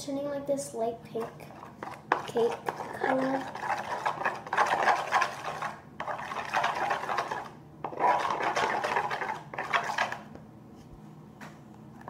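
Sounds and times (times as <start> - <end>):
metal spoon scraping plastic bowl: 1.5 - 10.3.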